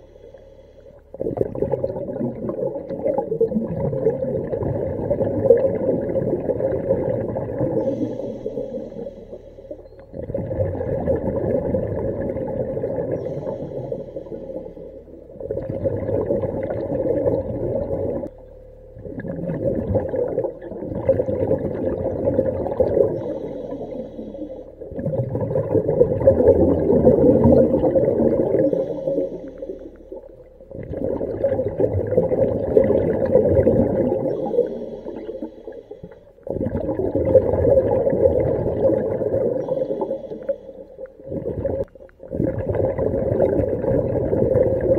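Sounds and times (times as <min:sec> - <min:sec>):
diver breathing through regulator: 0:00.0 - 0:01.2, 0:07.7 - 0:09.8, 0:13.1 - 0:15.2, 0:23.0 - 0:24.9, 0:28.3 - 0:30.3, 0:34.2 - 0:36.5, 0:39.5 - 0:41.1
bubbling surges: 0:01.0 - 0:44.9.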